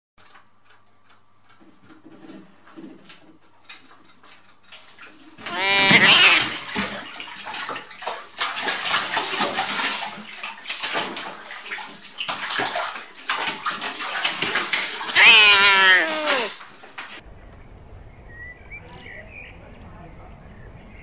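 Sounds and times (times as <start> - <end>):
bathtub water splashing: 4.2 - 17.2.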